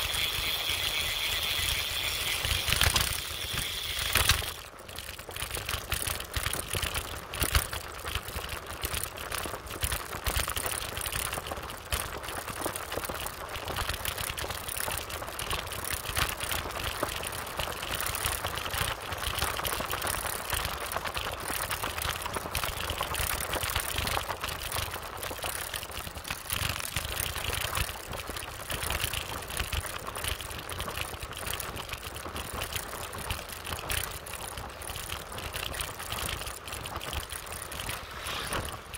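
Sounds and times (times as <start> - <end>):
motorbike engine running: 0.0 - 6.9
bike rattles and knocks: 0.0 - 38.9.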